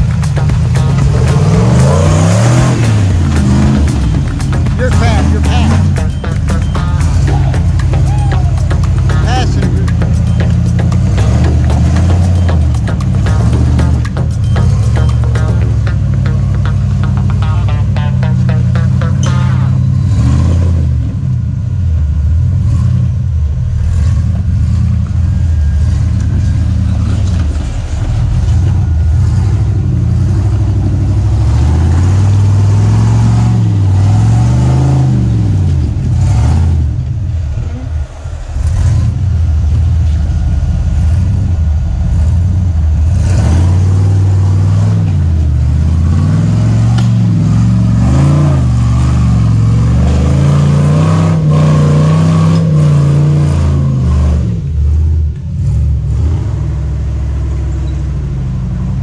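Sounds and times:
knocks and clatter: 0:00.0 - 0:19.8
off-road vehicle engine revving: 0:00.0 - 0:59.0.

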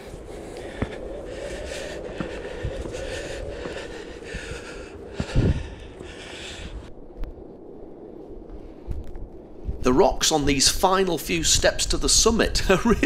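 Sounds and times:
person breathing hard: 0:00.0 - 0:06.9.

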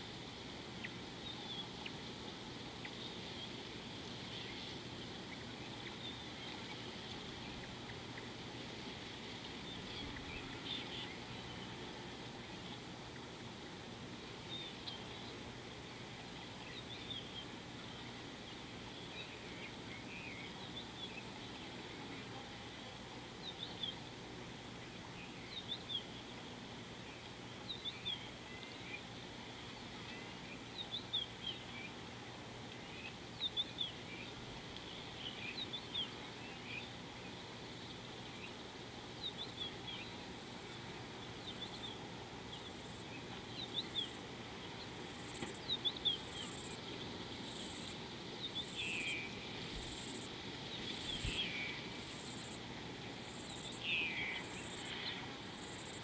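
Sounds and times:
small birds chirping: 0:39.2 - 0:56.0
insect pulsing call: 0:39.3 - 0:39.7, 0:40.3 - 0:40.8, 0:41.4 - 0:44.2, 0:44.8 - 0:56.0.

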